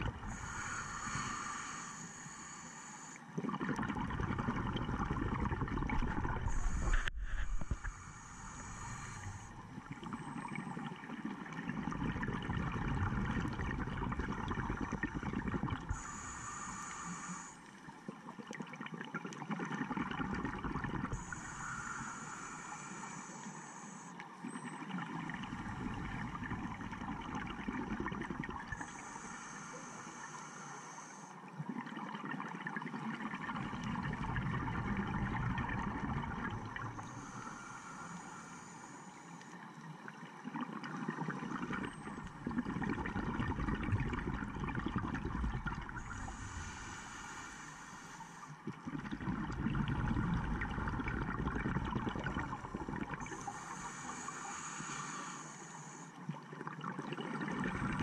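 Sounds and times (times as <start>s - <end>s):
exhaled bubbles gurgling: 0.0s - 30.4s, 31.4s - 38.5s, 39.8s - 47.7s, 48.4s - 58.0s
regulator inhale hiss: 0.2s - 3.4s, 6.4s - 10.7s, 15.8s - 17.9s, 21.1s - 24.5s, 28.7s - 31.5s, 36.7s - 39.9s, 45.8s - 48.8s, 53.2s - 56.4s.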